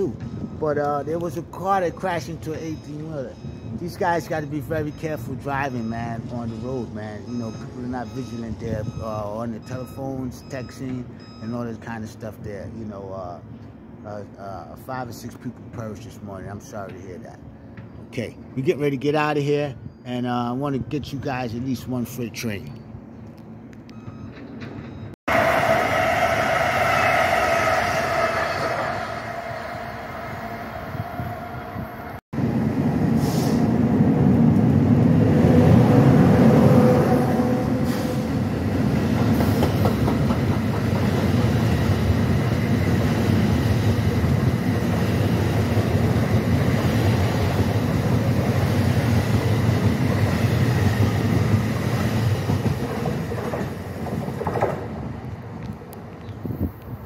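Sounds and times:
high many-toned train whine: 0:24.0 - 0:53.9
steel wheels rumbling on rail: 0:24.5 - 0:55.6.

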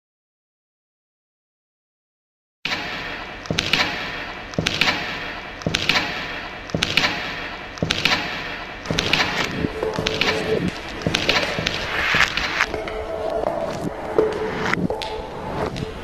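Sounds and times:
thuds with sharp clicks: 0:03.4 - 0:12.7.

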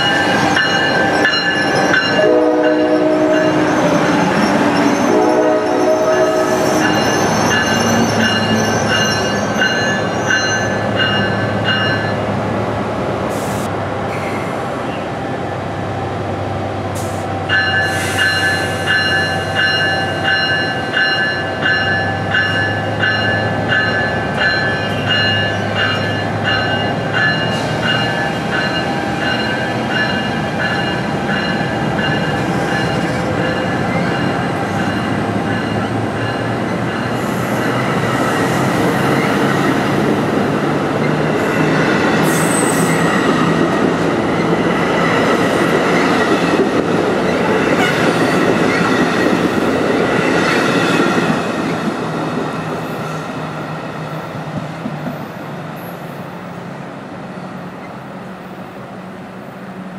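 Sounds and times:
crossing warning bell ringing: 0:00.0 - 0:12.3, 0:17.4 - 0:39.8
train coaches rolling past: 0:00.0 - 0:59.9
locomotive horn: 0:02.1 - 0:03.8, 0:05.0 - 0:07.0, 0:47.7 - 0:48.2.

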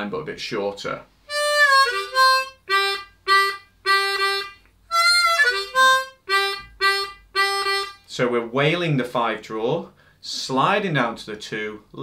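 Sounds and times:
harmonica notes: 0:01.3 - 0:08.1.

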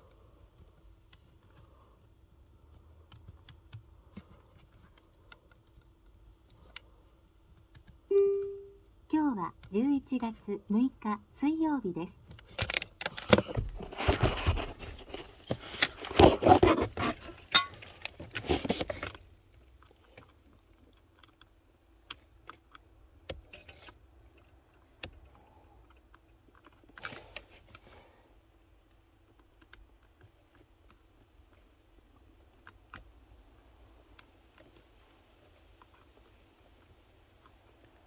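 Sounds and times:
hands working at fuse box: 0:00.0 - 0:08.8, 0:12.2 - 0:33.4
faint steady hum: 0:00.0 - 0:38.0.

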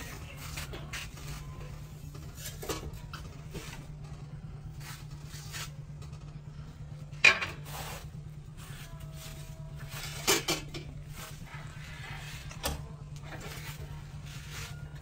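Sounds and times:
dishes and utensils clinking: 0:09.8 - 0:11.3.

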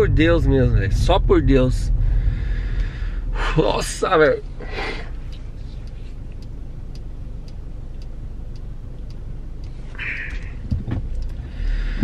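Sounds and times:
car engine rumble: 0:00.0 - 0:12.0
breathy exhale: 0:02.0 - 0:03.5, 0:11.4 - 0:12.0
faint regular ticks: 0:05.3 - 0:11.8.

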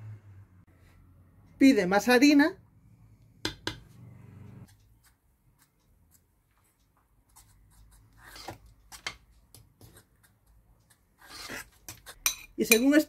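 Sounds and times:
fork scraping clay bowl: 0:08.1 - 0:09.0, 0:09.8 - 0:13.0.

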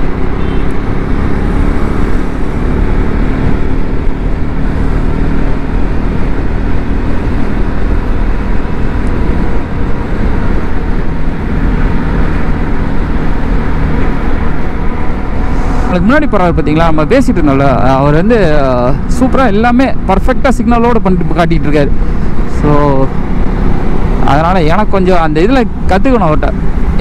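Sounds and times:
motorcycle engine running: 0:00.0 - 0:27.0
wind rush and road noise: 0:00.0 - 0:27.0.

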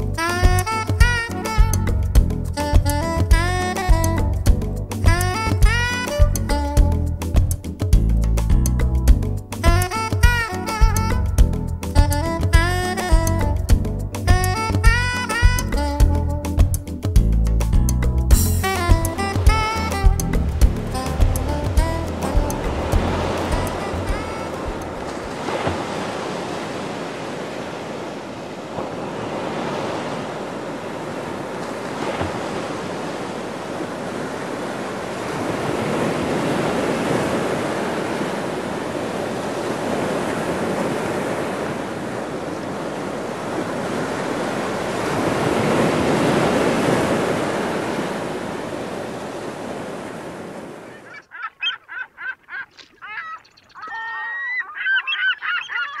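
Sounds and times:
surf washing up a beach: 0:18.6 - 0:51.1
short honking bird calls: 0:51.0 - 0:56.0.

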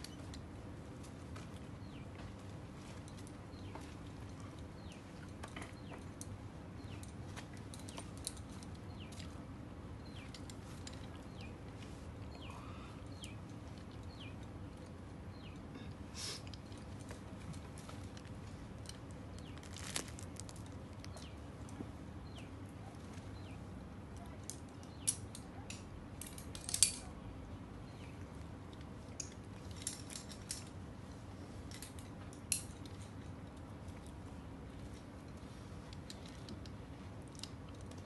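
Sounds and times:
low background hum: 0:00.0 - 0:38.0
climbing gear clinking: 0:02.8 - 0:09.4, 0:28.8 - 0:30.8, 0:34.8 - 0:38.0.

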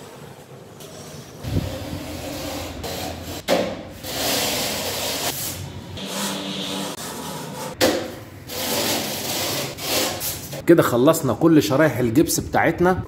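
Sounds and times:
scraping along board edges: 0:00.8 - 0:07.8.

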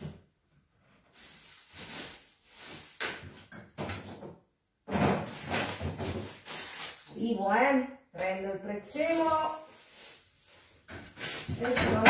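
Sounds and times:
cupboard and drawer knocks and rattles: 0:03.2 - 0:06.4, 0:10.9 - 0:12.0.

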